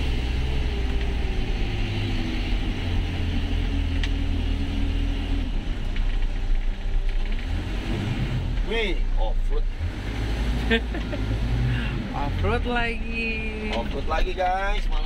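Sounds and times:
diesel engine humming: 0.0 - 15.0.

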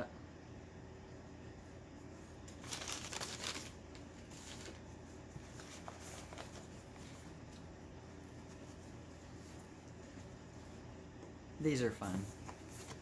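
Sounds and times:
wrapping rustling and crinkling: 2.5 - 7.7.

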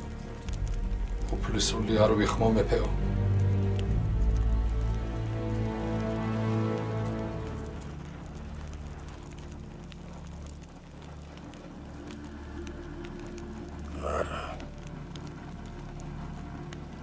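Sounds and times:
soft rain patter: 0.0 - 17.0
breathy rush: 11.7 - 15.5.

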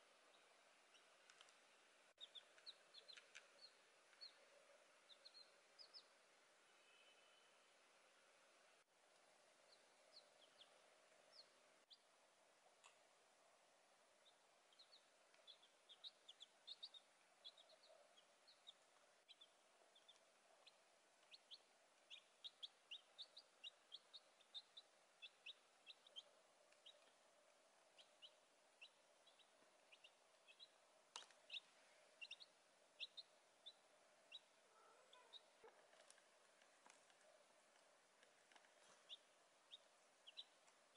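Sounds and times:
faint steady hum: 0.0 - 40.9
chicks peeping: 2.2 - 4.5, 5.1 - 6.2, 9.7 - 12.0, 14.2 - 40.9.

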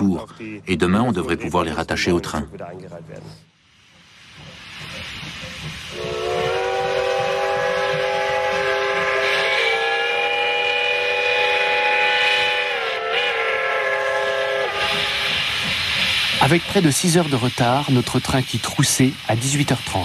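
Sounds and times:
steam hissing: 3.4 - 20.0
steam locomotive whistle: 5.9 - 15.6.

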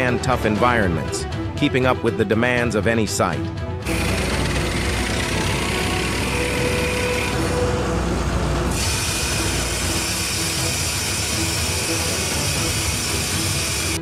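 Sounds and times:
drill rig mechanical din: 3.8 - 14.0.

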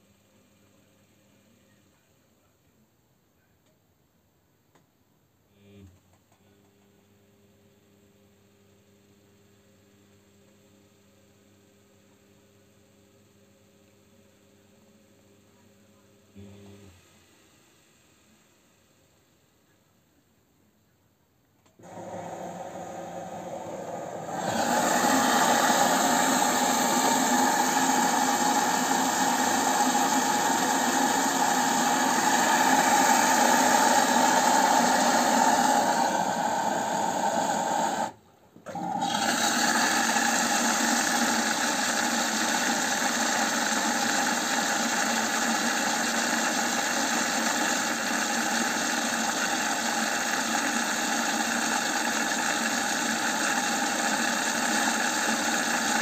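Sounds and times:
washing machine running: 21.8 - 56.0.

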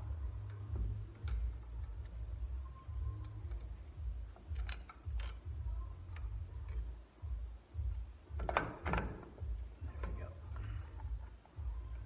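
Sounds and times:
low pulsing hum: 0.0 - 12.0
metal tool clicking on brake parts: 3.1 - 5.5.

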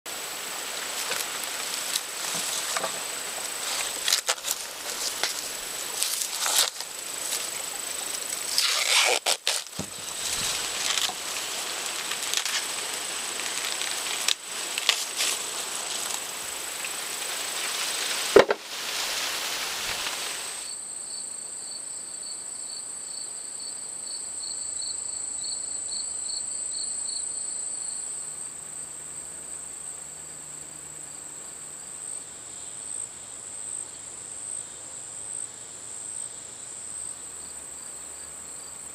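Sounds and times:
crickets trilling: 0.1 - 38.9
pulsing insect chirp: 0.1 - 38.9
clicks and crackles: 0.8 - 17.0.

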